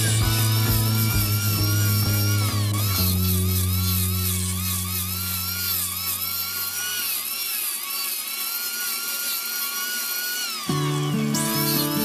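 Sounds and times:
angle grinder grinding wood: 0:00.0 - 0:12.0.

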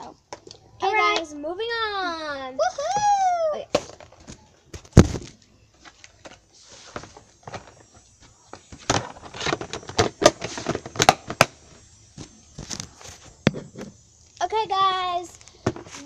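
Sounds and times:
loud thump: 0:04.9 - 0:05.3.

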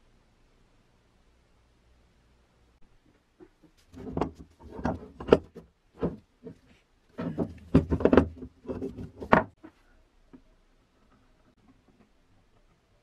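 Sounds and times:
metal knocking on wood: 0:03.4 - 0:06.6, 0:07.2 - 0:09.6.

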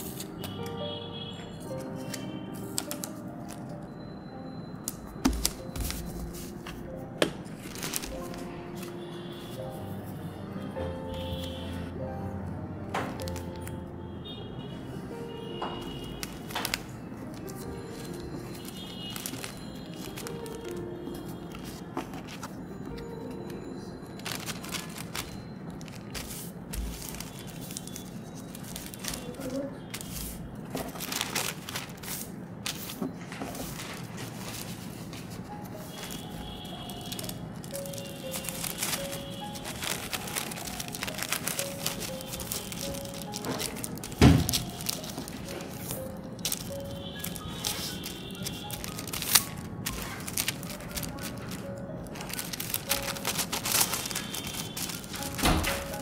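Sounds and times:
paper rustling: 0:00.0 - 0:00.8, 0:01.6 - 0:03.9, 0:04.8 - 0:09.8, 0:13.0 - 0:13.8, 0:15.8 - 0:23.6, 0:24.2 - 0:56.0
soft background music: 0:00.0 - 0:56.0.

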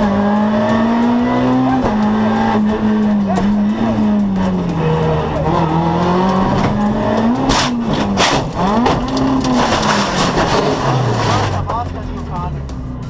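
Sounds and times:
rally car engine from inside cabin: 0:00.0 - 0:13.0
tyres skidding: 0:00.0 - 0:13.0
car crashing: 0:06.2 - 0:11.8.

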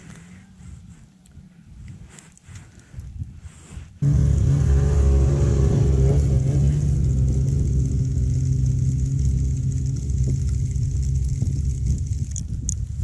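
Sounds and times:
vehicle engine running steadily: 0:04.0 - 0:13.0.

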